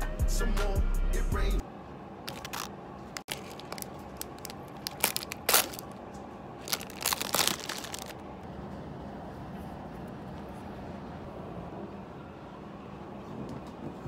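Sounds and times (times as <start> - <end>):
plastic wrapper crinkling and tearing: 2.3 - 6.0, 6.6 - 8.2.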